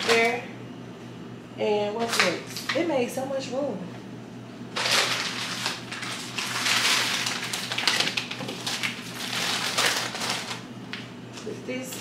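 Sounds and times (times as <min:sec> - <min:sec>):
plastic packaging crinkling: 0:04.7 - 0:11.0.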